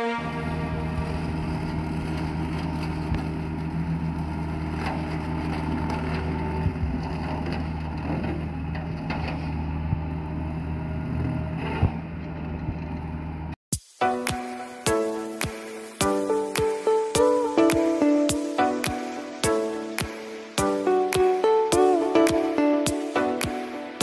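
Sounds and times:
excavator diesel engine running: 0.0s - 13.6s.

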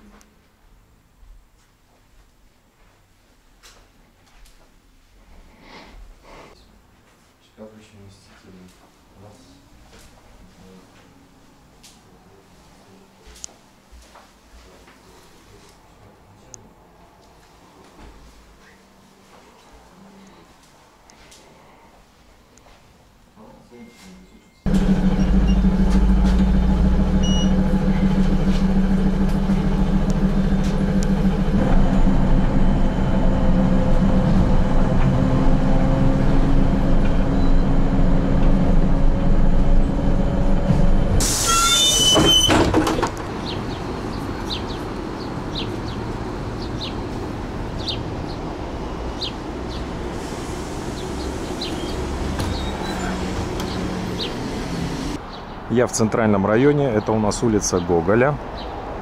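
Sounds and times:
electric drive humming: 24.7s - 41.2s
street traffic noise: 24.7s - 59.0s
compressed air hiss: 41.2s - 41.9s, 50.1s - 51.8s.

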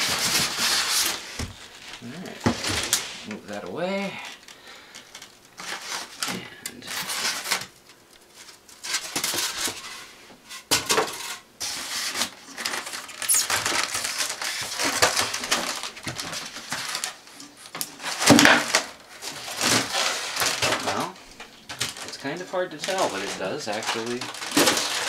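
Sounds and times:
styrofoam scraping on metal: 0.0s - 3.3s, 5.6s - 7.7s, 8.4s - 21.2s.

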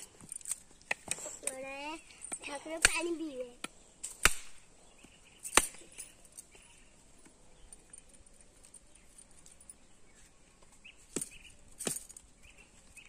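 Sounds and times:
knife cracking a coconut: 4.1s - 4.6s, 5.5s - 5.8s.

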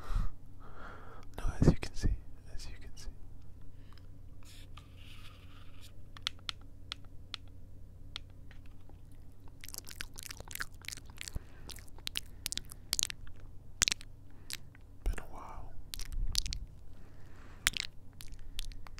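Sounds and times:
breath: 0.0s - 1.3s, 3.7s - 4.1s, 11.2s - 12.8s, 16.9s - 17.8s
kisses and lip smacks: 9.5s - 15.3s, 15.9s - 16.8s, 17.6s - 18.9s.

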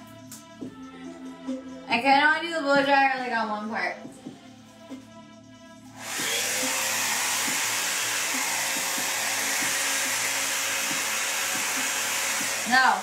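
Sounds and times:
hair dryer running: 6.0s - 13.0s.

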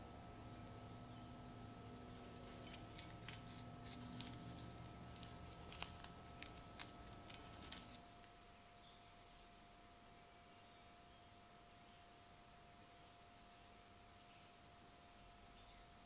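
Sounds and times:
faint steady hum: 0.0s - 16.0s
glove fabric rubbing on metal: 1.8s - 8.0s.

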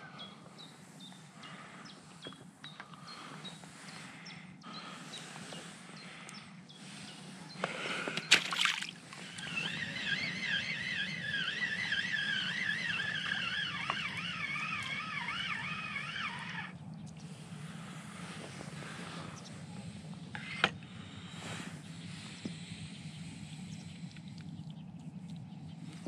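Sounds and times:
small birds chirping: 0.0s - 26.0s
water lapping and sloshing: 6.8s - 19.2s
loud splashing clatter: 8.3s - 8.9s.

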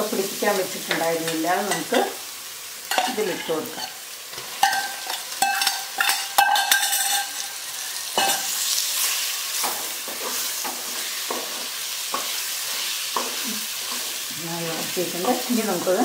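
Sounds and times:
food sizzling in pot: 0.0s - 16.0s
metal bowl clinking: 2.9s - 7.6s, 8.2s - 8.5s
wooden spoon scraping and stirring: 8.2s - 16.0s.

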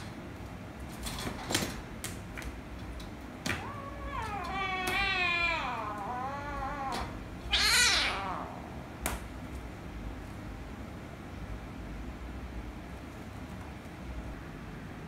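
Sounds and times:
kitten meowing: 3.5s - 8.7s
kitten hissing cry: 3.6s - 8.8s.

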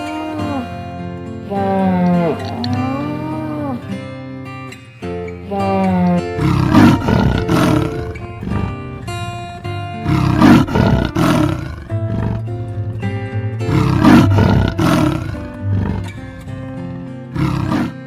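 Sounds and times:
background music: 0.0s - 18.0s
large animal calling: 1.5s - 4.0s, 5.5s - 9.1s, 9.9s - 16.5s, 17.2s - 18.0s.

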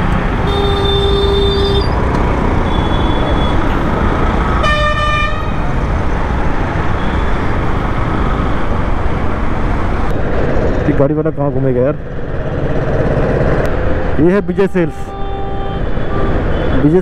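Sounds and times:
heavy road traffic: 0.0s - 17.0s
vehicle horns honking: 0.4s - 2.0s, 2.6s - 3.6s, 4.6s - 5.6s, 14.2s - 17.0s.

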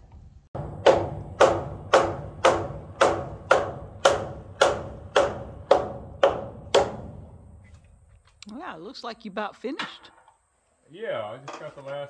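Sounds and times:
hammer striking nails into metal: 0.6s - 7.4s.

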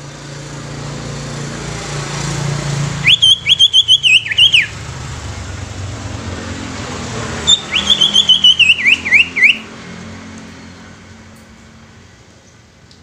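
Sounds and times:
bird singing chirps and whistles: 3.0s - 4.8s, 7.5s - 9.6s.

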